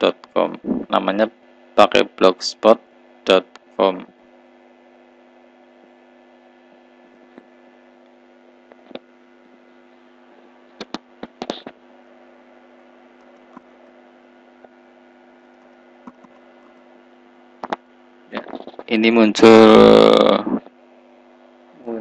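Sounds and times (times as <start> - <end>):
low electrical hum: 0.0 - 22.0
keyboard typing: 16.0 - 16.8.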